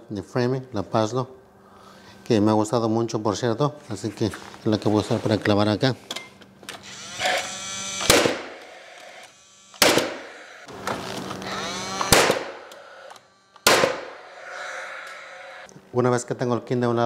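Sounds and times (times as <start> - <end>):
nailer fan whirring: 6.8 - 15.7
nail gun firing shot: 8.0 - 8.7, 9.8 - 10.3, 12.0 - 12.8, 13.6 - 14.1.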